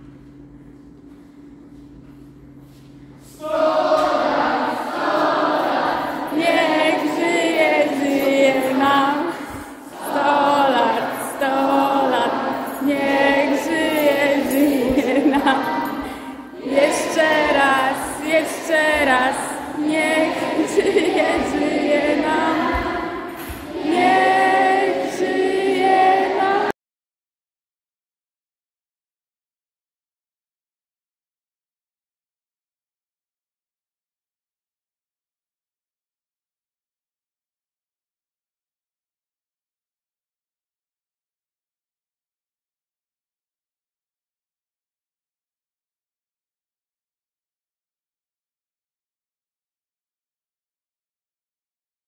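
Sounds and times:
faint steady hum: 0:00.0 - 0:23.8
group of people singing: 0:03.3 - 0:26.8.

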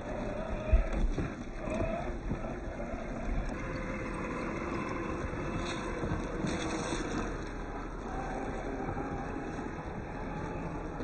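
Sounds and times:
rumbling background noise: 0:00.0 - 0:11.0.

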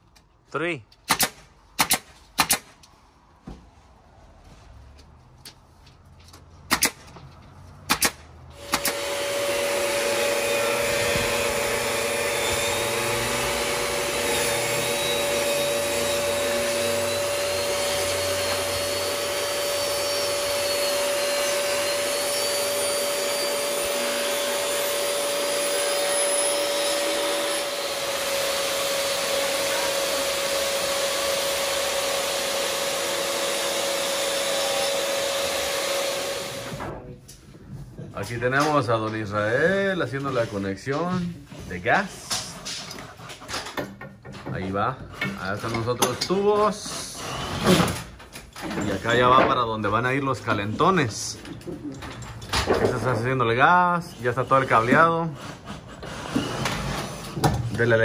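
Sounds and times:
nail gun shots: 0:01.0 - 0:02.8, 0:06.7 - 0:07.1, 0:07.9 - 0:09.1
table saw cutting boards: 0:08.5 - 0:36.9, 0:45.1 - 0:51.4, 0:54.0 - 0:58.0
shop vacuum whining: 0:08.5 - 0:37.1.

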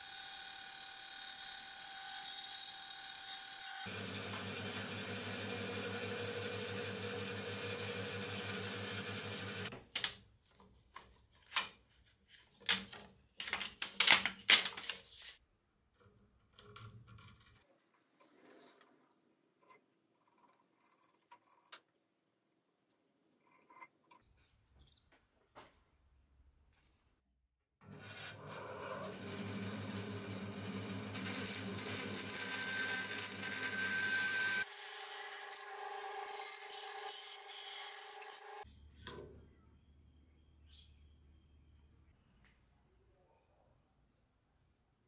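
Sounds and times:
bandsaw cutting wood: 0:00.0 - 0:09.7, 0:27.8 - 0:38.6.

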